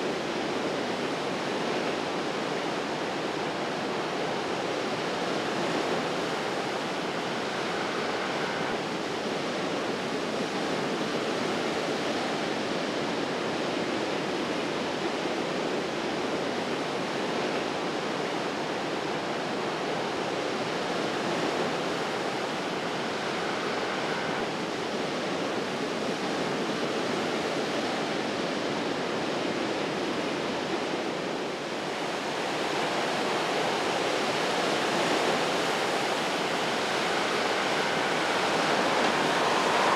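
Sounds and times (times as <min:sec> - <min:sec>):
surf breaking over rocks: 0:34.1 - 0:39.9.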